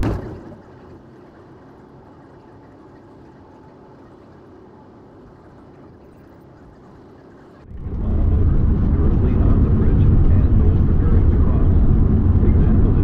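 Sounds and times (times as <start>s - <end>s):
road and engine rumble: 0.0s - 13.0s.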